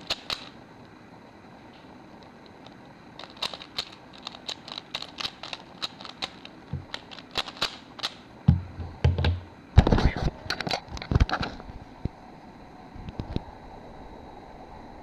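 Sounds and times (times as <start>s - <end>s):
puzzle cube clicking: 0.0s - 0.6s, 2.3s - 8.3s
knocks and thumps: 8.5s - 10.1s.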